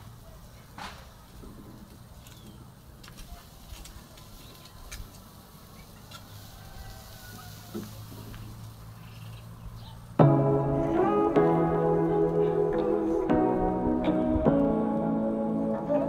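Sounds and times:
loud music: 0:10.2 - 0:16.0.

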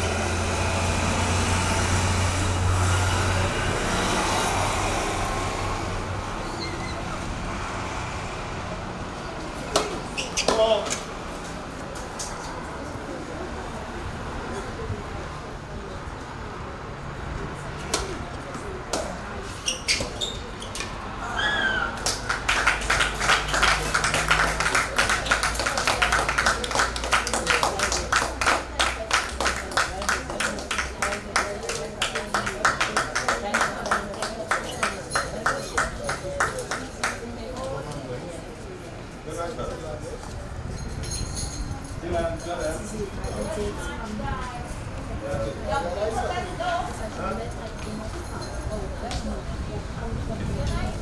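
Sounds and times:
road noise: 0:00.0 - 0:51.0
crowd clapping: 0:21.9 - 0:37.4.

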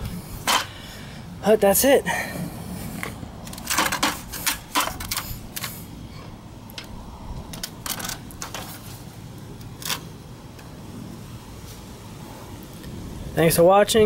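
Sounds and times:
sheet metal rattling and clinking: 0:03.5 - 0:05.7.

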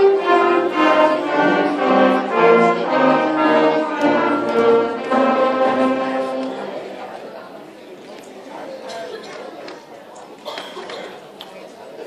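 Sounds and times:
concert band playing: 0:00.0 - 0:06.9.

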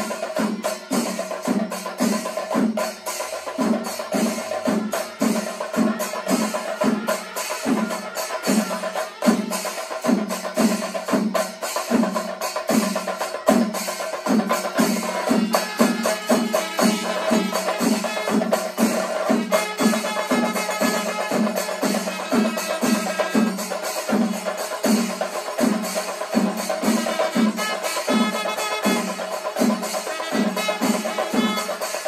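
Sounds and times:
cymbals clashing: 0:00.0 - 0:32.0
drum ensemble beating: 0:00.0 - 0:32.0.

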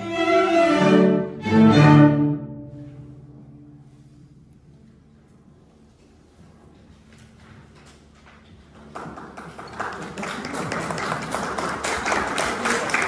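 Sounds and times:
audience applause: 0:08.8 - 0:13.0.

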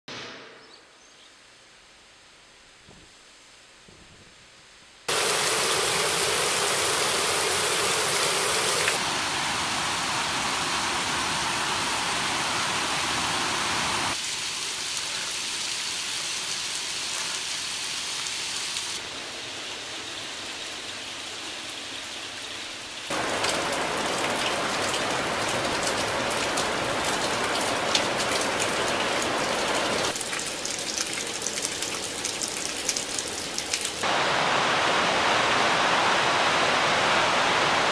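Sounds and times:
steady rain: 0:01.8 - 0:37.9.

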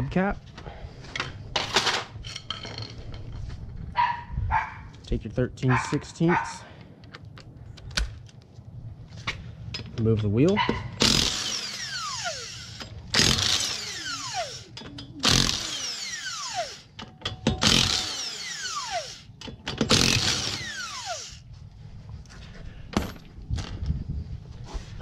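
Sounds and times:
impact wrench spinning: 0:11.0 - 0:21.4.

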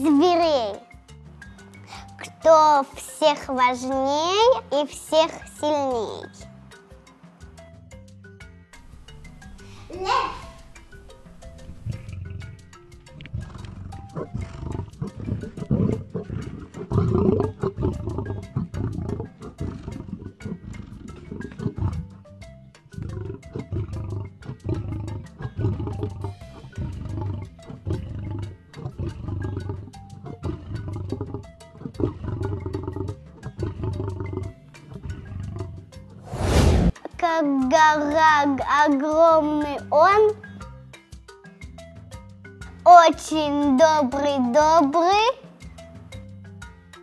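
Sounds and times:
background music: 0:00.0 - 0:47.0
lion roaring: 0:11.4 - 0:22.2, 0:22.9 - 0:36.8.

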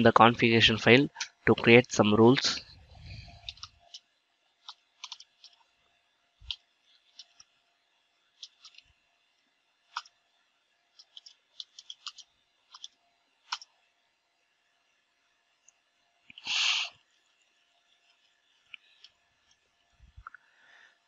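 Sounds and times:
computer keyboard keys clicking: 0:03.4 - 0:04.0, 0:04.6 - 0:05.6, 0:08.4 - 0:08.8, 0:09.9 - 0:10.1, 0:11.0 - 0:13.7.

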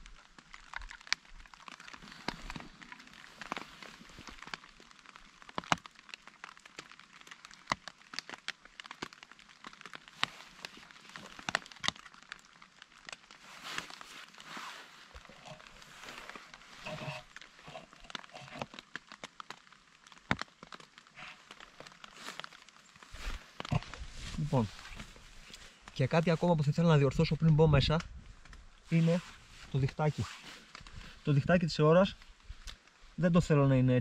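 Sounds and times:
raindrops tapping on a tarp: 0:00.0 - 0:34.0
brief rustle: 0:28.4 - 0:31.3.

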